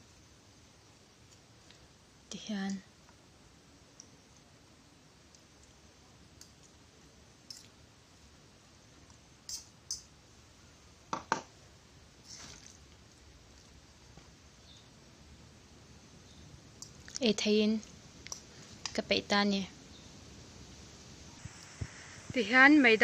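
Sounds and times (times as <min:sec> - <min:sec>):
fork clicking against a plate: 0:09.5 - 0:10.1.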